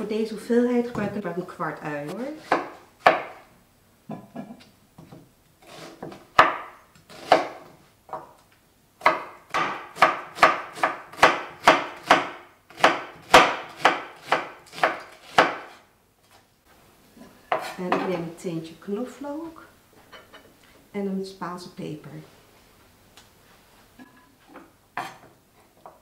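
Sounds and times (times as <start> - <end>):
knife slicing onion on board: 2.2 - 3.4, 5.0 - 8.3, 9.0 - 16.4.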